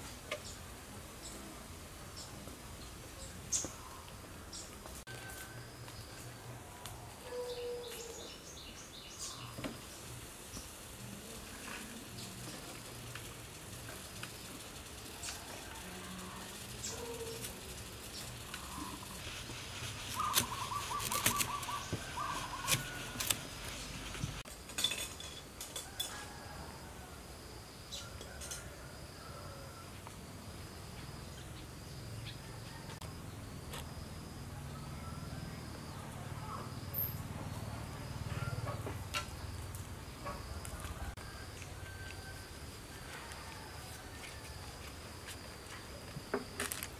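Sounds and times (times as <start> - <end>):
insects: 0.0 - 46.9
bird song: 7.2 - 10.8, 20.1 - 23.0.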